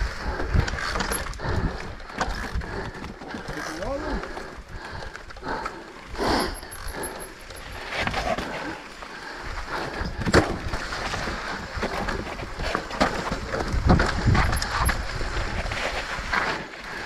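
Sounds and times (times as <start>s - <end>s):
bike rattling: 0.0s - 17.0s
tyres rolling over dirt: 7.5s - 17.0s.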